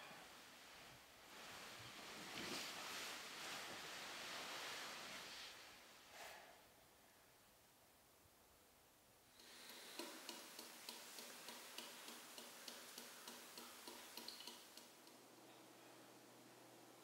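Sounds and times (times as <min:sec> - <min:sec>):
soft room tone hiss: 0:00.0 - 0:17.0
wall clock ticking: 0:09.4 - 0:15.3.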